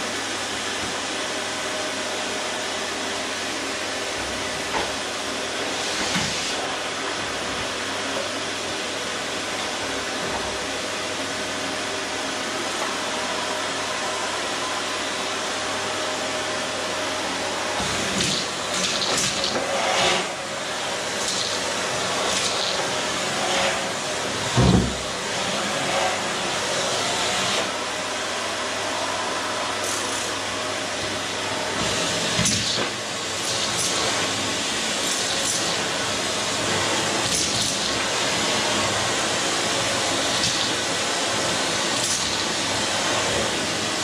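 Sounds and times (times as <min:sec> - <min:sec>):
vacuum cleaner running: 0:00.0 - 0:44.0.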